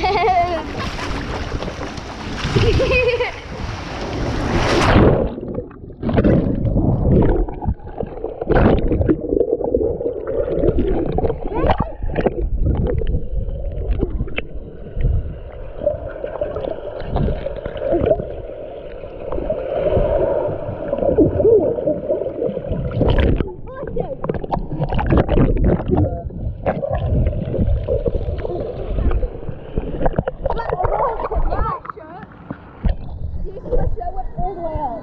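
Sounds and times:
water splashing: 0.0 - 34.5
underwater gurgling and sloshing: 0.0 - 35.0
dull underwater knocks: 29.0 - 34.0.

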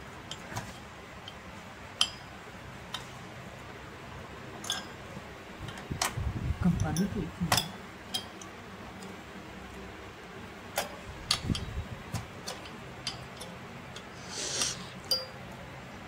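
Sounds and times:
low steady hum: 0.0 - 16.0
short metal scrape: 14.2 - 14.9.

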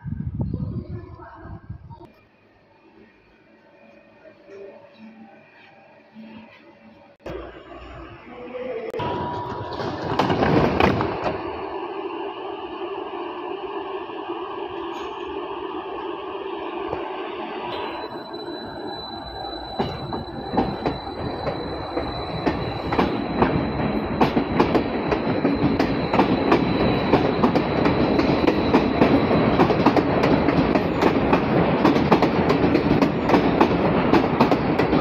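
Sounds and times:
electric train accelerating past: 2.3 - 35.0
thin high whine: 11.4 - 29.6
train wheels clacking over rail joints: 19.8 - 35.0.

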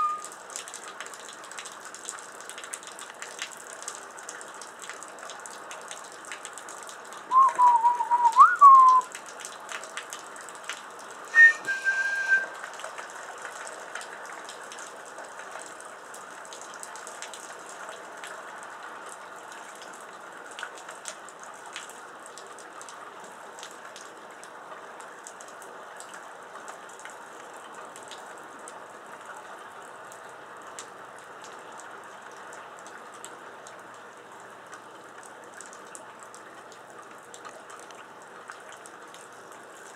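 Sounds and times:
person whistling: 0.0 - 0.2, 7.3 - 9.0, 11.3 - 12.6
steady rain: 0.0 - 39.9.

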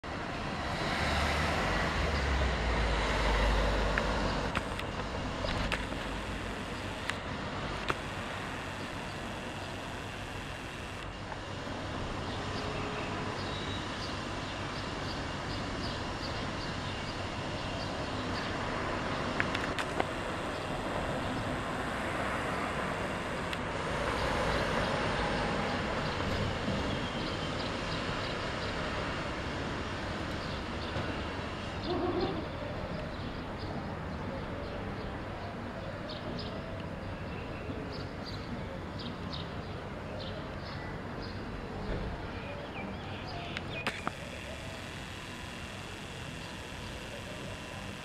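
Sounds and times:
vehicle rumble: 0.0 - 12.4
traffic hiss: 0.1 - 33.2
short clicks: 3.9 - 11.4, 43.5 - 48.0.

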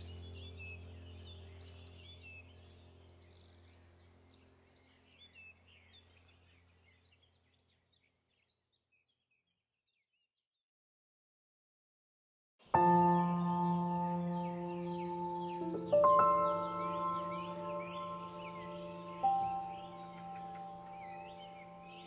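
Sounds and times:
bird-like chirping: 12.8 - 22.0
low steady drone: 12.8 - 22.0.

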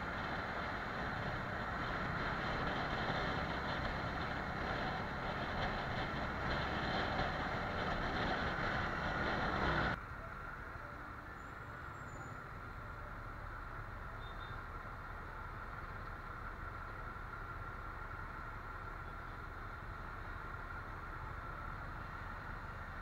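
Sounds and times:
motorcycle engine at speed: 0.0 - 10.0
steady traffic noise: 0.0 - 23.0
wind and road noise: 0.0 - 23.0.

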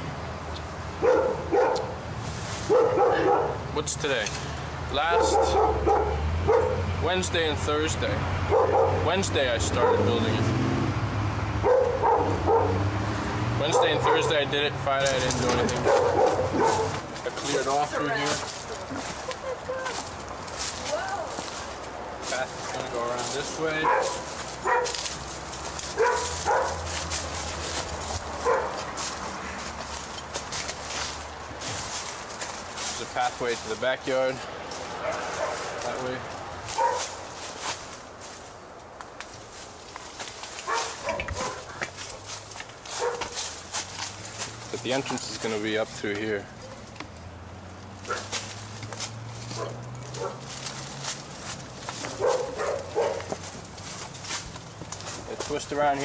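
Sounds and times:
steady low hum: 0.0 - 56.0
twigs and leaves crackling: 0.3 - 56.0
dog barking: 1.0 - 3.7, 5.0 - 7.0, 8.4 - 10.4, 11.4 - 12.9, 13.6 - 14.5, 15.1 - 17.1, 23.4 - 27.0, 28.4 - 29.0, 34.9 - 36.0, 36.7 - 37.2, 40.6 - 42.2, 42.8 - 43.6, 48.0 - 48.4, 49.4 - 50.7, 51.7 - 53.4
rustling through brush: 1.4 - 4.7, 13.8 - 56.0.

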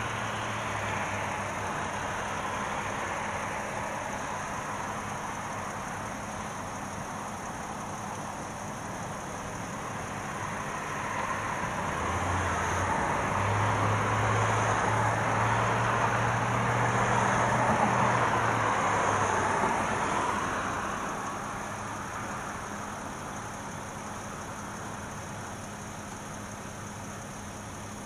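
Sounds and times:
car passing: 0.0 - 6.0, 9.8 - 23.0.

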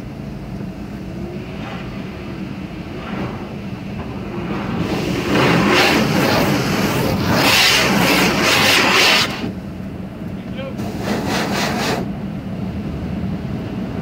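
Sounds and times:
steady low hum: 0.0 - 14.0
water jets spraying on car: 1.0 - 9.7, 10.4 - 12.1.

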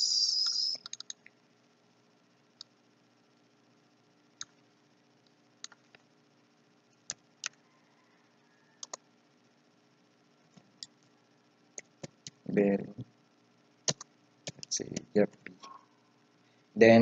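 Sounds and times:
faint steady hum: 0.0 - 17.0
mouse and keyboard clicks: 0.4 - 1.2, 8.8 - 9.0, 13.9 - 15.8.

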